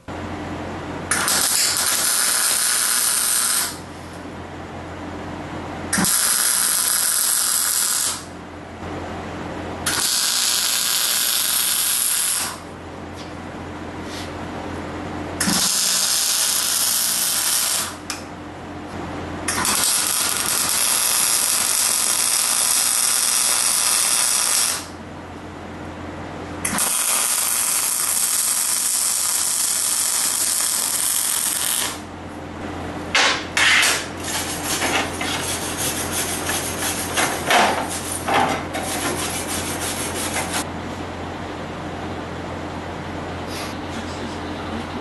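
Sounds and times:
hammer chipping at weld: 1.1s - 3.8s, 5.9s - 8.2s, 19.5s - 24.9s, 33.1s - 40.6s
welder arc crackling hiss: 1.1s - 3.8s, 6.0s - 8.3s, 9.9s - 12.6s, 15.4s - 18.0s, 19.5s - 24.9s, 26.7s - 32.0s.

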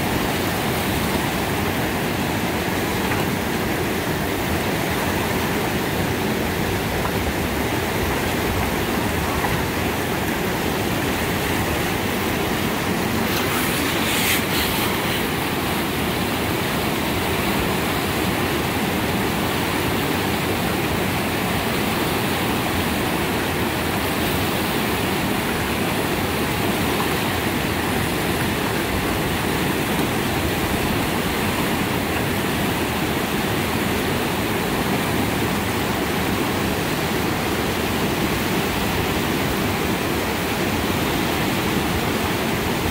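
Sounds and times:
water rushing over rocks: 0.0s - 42.9s
sharp hiss: 13.2s - 15.8s.

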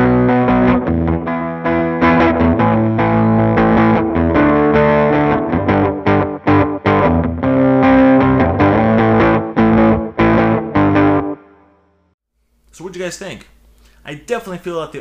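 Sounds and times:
electric guitar riff: 0.0s - 11.8s.

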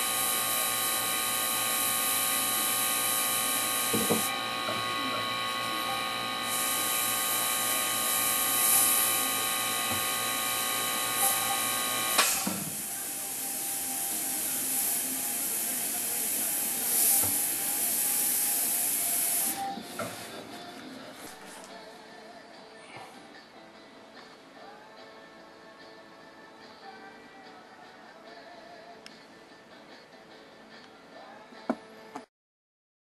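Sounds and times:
airbrush hissing: 0.0s - 20.5s
machine hum: 0.0s - 21.5s.

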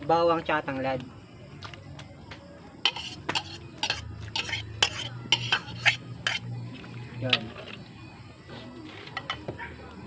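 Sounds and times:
utensils clinking against metal wok: 2.8s - 7.8s.

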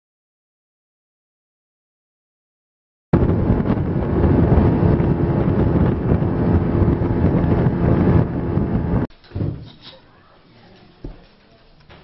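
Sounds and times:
outboard motor running: 3.2s - 9.0s
wind buffeting microphone: 3.2s - 9.6s.

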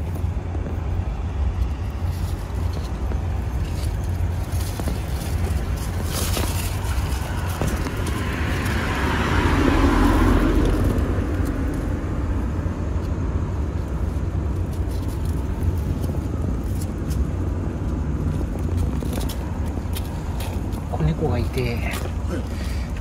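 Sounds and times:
car passing: 0.0s - 23.0s
low traffic rumble: 0.0s - 23.0s.

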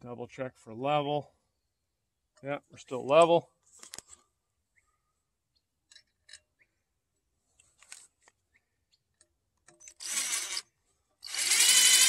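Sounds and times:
cordless drill driving a screw: 9.8s - 12.0s.

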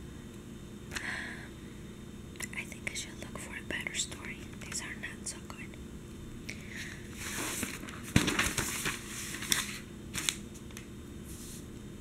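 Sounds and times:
newspaper page rustling and crackling: 7.2s - 10.8s.

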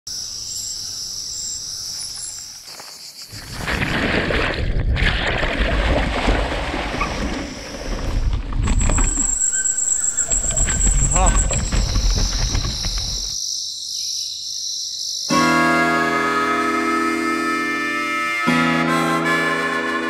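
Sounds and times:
insects buzzing: 0.1s - 3.5s, 8.8s - 15.3s.

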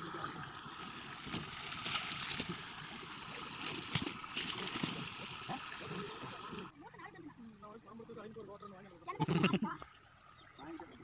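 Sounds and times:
juice boiling with bubbling hiss: 0.0s - 7.9s.

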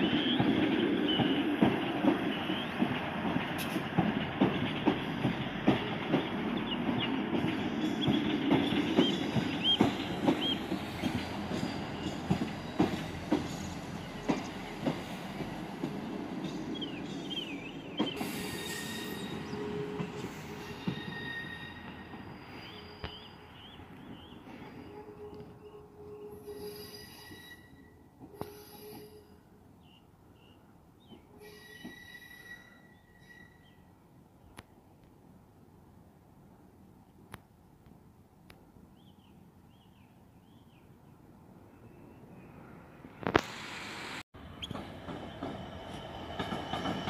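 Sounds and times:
train engine low hum: 0.0s - 47.0s
train wheels clicking over joints: 0.3s - 24.8s, 44.6s - 47.0s
high wheel squeals: 18.2s - 23.4s, 26.3s - 29.3s, 31.4s - 33.8s.

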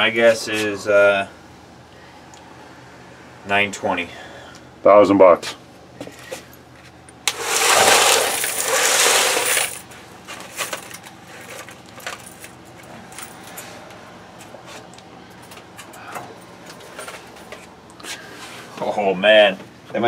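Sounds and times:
coins jingling in metal pan: 7.4s - 9.9s.

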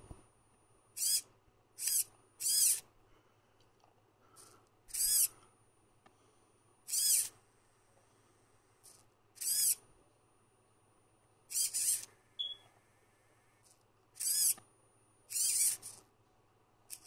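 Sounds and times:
servo motors whining: 1.0s - 1.2s, 1.8s - 2.8s, 4.9s - 5.3s, 6.9s - 7.3s, 8.8s - 9.8s, 11.5s - 12.1s, 14.2s - 14.6s, 15.3s - 16.0s.

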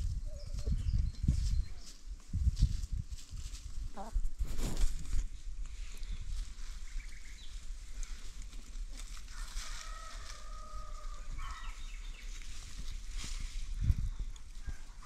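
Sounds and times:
chickens calling: 4.0s - 4.2s.

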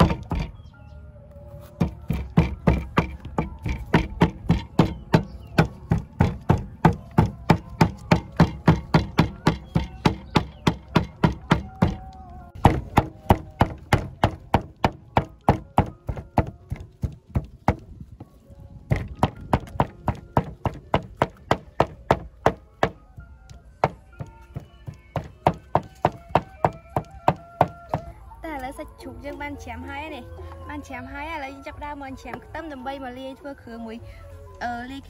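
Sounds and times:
cleaver chopping on wooden board: 0.0s - 0.6s, 1.8s - 17.9s, 18.9s - 23.0s, 23.8s - 28.1s.

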